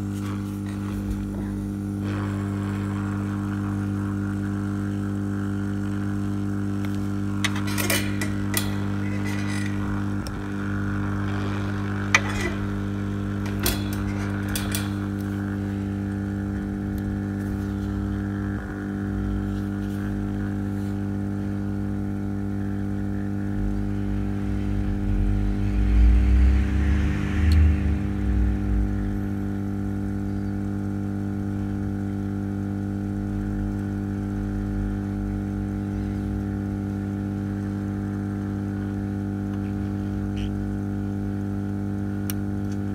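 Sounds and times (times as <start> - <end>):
hot air blower hissing: 0.0 - 33.0, 33.8 - 42.9
low rumbling: 0.3 - 30.8.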